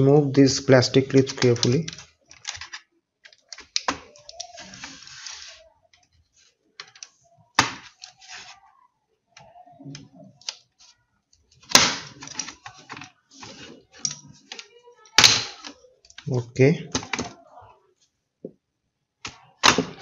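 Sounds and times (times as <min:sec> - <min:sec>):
plastic clips cracking: 0:01.1 - 0:05.0, 0:11.6 - 0:13.1, 0:14.0 - 0:16.3
plastic scraping: 0:03.8 - 0:05.6.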